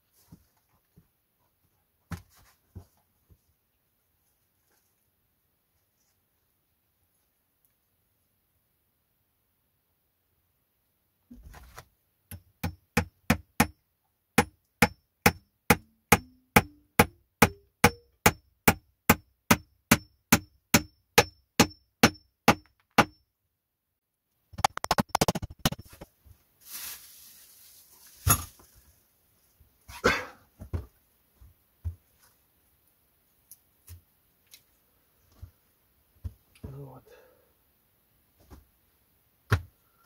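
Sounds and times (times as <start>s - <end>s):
hammer driving nail into wood: 14.4s - 23.2s.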